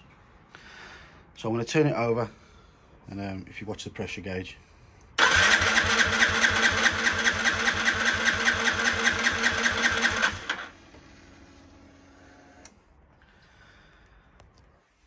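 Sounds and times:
engine cranking over by starter: 5.2s - 10.7s.

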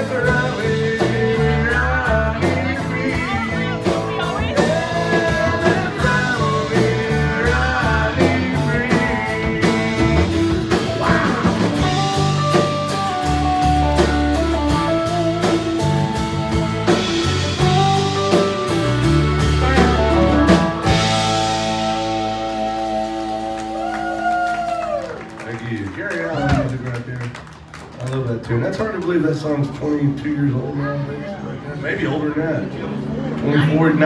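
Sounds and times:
man singing: 0.0s - 13.0s
country band playing: 0.0s - 34.0s
fiddle lead: 9.4s - 24.3s.

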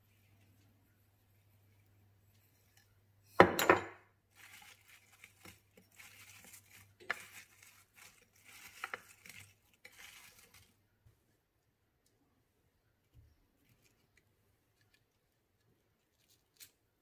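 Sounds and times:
apple slices shuffling on plate: 4.3s - 10.8s.

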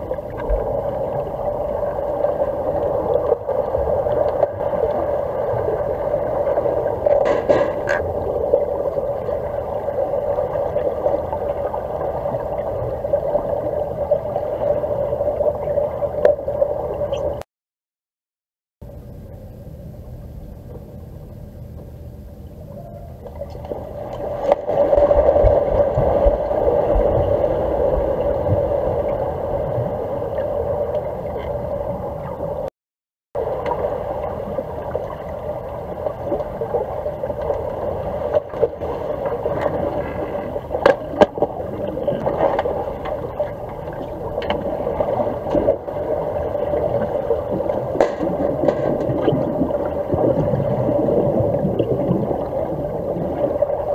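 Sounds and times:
muffled underwater rush: 0.0s - 17.4s, 20.1s - 32.7s, 33.4s - 53.9s.

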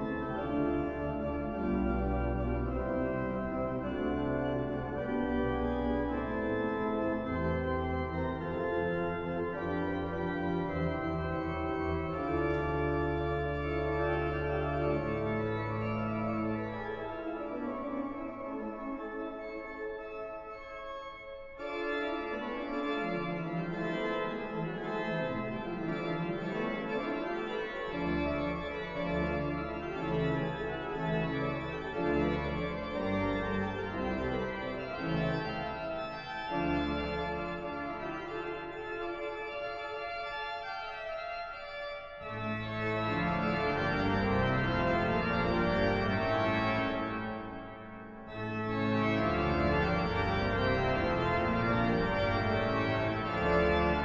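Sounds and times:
pipe organ playing: 0.0s - 54.0s.

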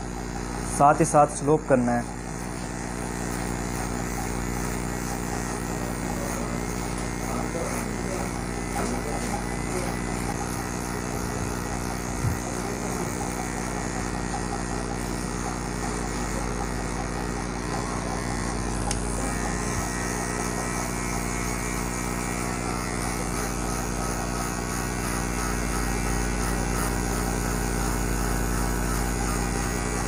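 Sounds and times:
electric hair clipper buzzing: 0.0s - 30.0s.

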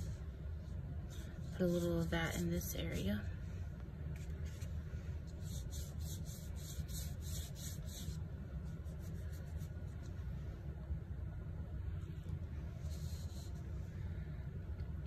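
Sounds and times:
paintbrush dabbing on paper: 0.0s - 3.1s, 4.2s - 10.2s, 12.7s - 13.7s
low steady hum: 0.0s - 15.0s.

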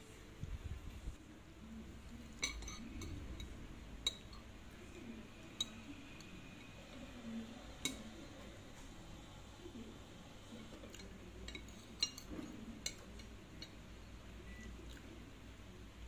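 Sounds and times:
utensils clinking on ceramic plate: 2.4s - 4.5s, 10.9s - 13.8s.

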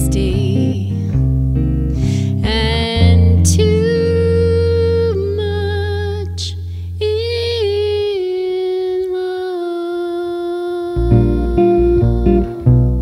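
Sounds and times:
woman singing jazz ballad: 0.0s - 1.1s, 2.1s - 12.8s
low bass note: 0.0s - 8.2s.

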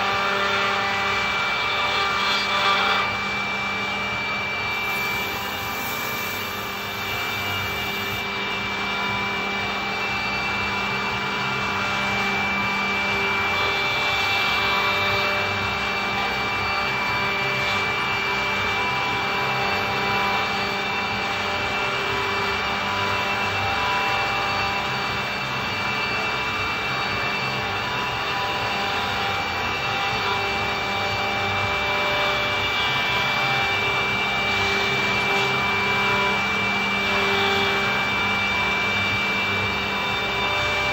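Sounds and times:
cutters rasping in wood: 0.0s - 8.4s
milling machine spindles whining: 0.0s - 40.9s.

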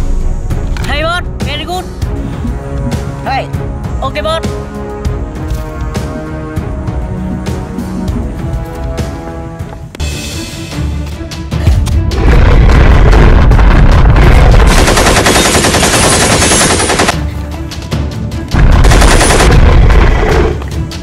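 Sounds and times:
automatic rifle fire: 14.2s - 17.2s, 18.7s - 20.2s.

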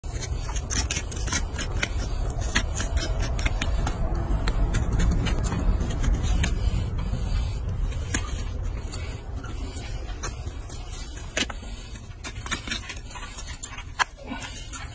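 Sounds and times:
knife scraping hoof: 0.0s - 14.9s
low rumble: 1.4s - 12.0s.

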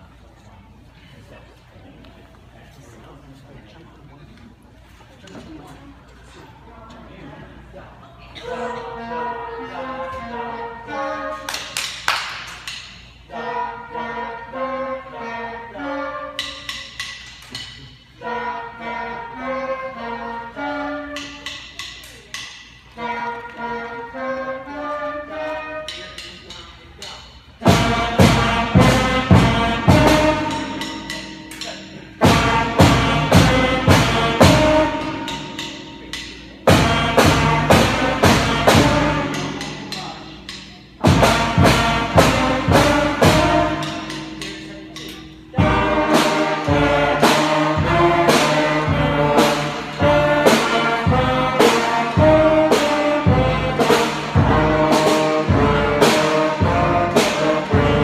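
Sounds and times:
concert band playing bouncy tune: 27.6s - 58.0s.

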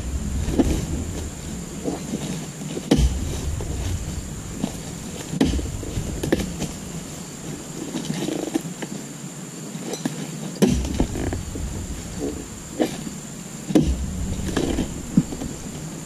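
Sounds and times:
chisel chopping into stalk: 2.9s - 3.2s, 5.4s - 6.5s.

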